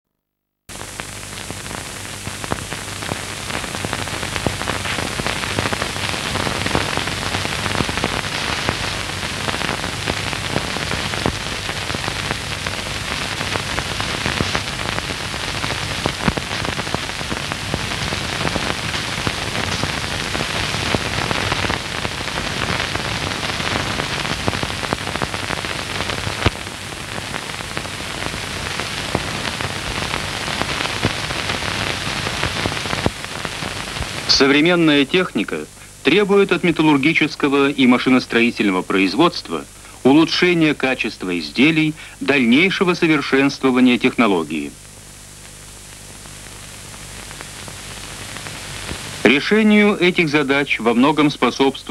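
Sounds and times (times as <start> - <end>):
film soundtrack crackle and hiss: 0.7 - 51.9.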